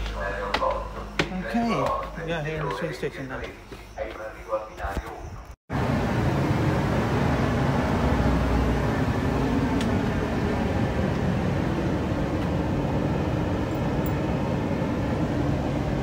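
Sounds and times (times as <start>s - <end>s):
train rumble and hum: 5.7s - 16.0s.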